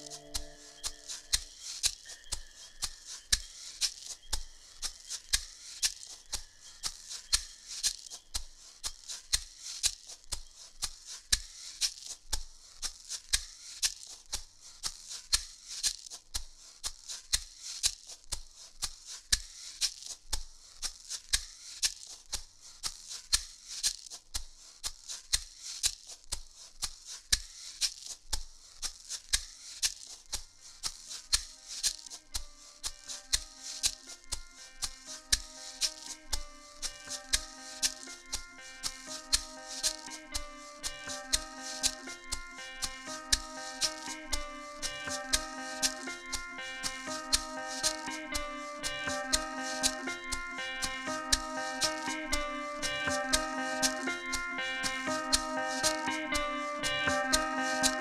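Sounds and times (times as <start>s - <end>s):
percussive music: 38.9s - 58.0s.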